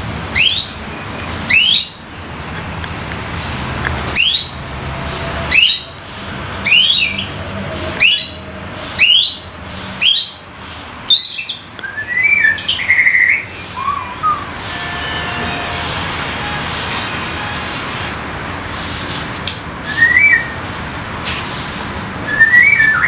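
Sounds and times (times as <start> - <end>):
bird calling: 1.5 - 2.0, 5.5 - 6.0, 6.6 - 7.4, 8.0 - 10.5, 11.1 - 15.8
bird warbling: 11.1 - 15.8.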